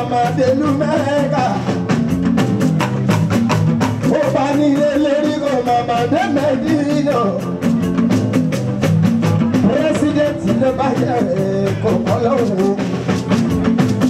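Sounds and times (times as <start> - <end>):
man singing into a microphone: 0.0 - 1.8, 4.0 - 7.7, 9.4 - 13.0
bass line: 0.0 - 14.0
fast dense percussion: 0.0 - 14.0.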